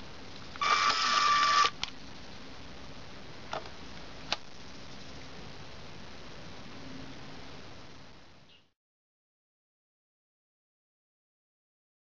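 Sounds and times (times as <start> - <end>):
toy motor whirring: 0.6 - 1.8.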